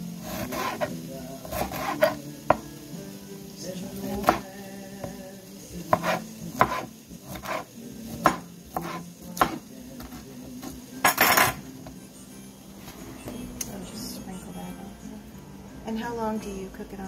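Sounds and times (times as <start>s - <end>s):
knife scraping cutting board: 0.2s - 2.2s, 4.2s - 4.4s, 5.9s - 10.2s, 11.0s - 11.6s.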